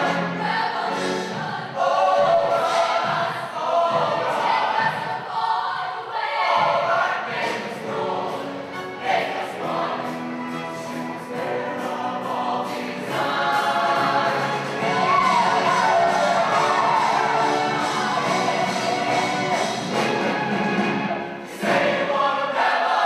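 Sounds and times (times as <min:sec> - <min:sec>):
choir singing in harmony: 0:00.0 - 0:23.0
live band: 0:08.0 - 0:21.9.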